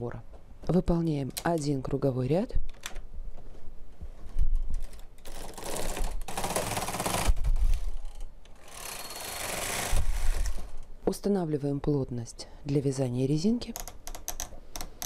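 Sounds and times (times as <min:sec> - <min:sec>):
knitting machine carriage rattling: 0:04.7 - 0:10.8.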